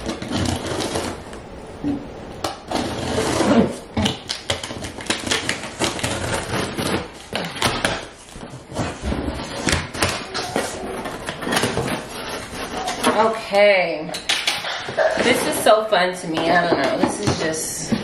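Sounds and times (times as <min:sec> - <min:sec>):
packaging rustling: 0:00.0 - 0:01.6, 0:02.3 - 0:13.4
scissors cutting tape and cardboard: 0:02.7 - 0:13.3.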